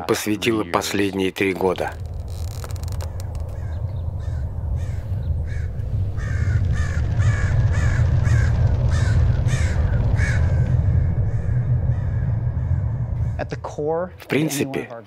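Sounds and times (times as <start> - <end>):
steady low rumble: 1.2 - 15.0
crows cawing: 2.3 - 13.6.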